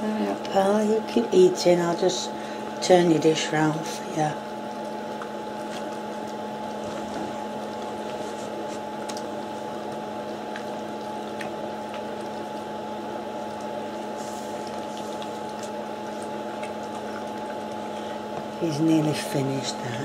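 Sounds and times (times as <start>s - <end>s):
steady hum: 0.0s - 20.0s
clicks and licks: 4.7s - 12.7s, 13.4s - 18.6s
dog eating from metal bowl: 13.5s - 19.8s.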